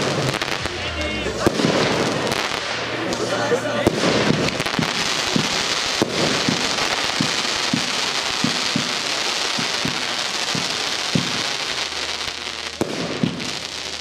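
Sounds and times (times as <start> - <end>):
firework hiss: 0.0 - 14.0
sharp firework crack: 0.0 - 14.0
firework launch thumps: 3.9 - 11.5.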